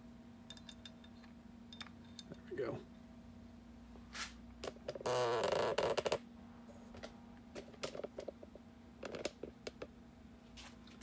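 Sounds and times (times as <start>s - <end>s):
hand rubbing and scraping: 4.1s - 4.4s.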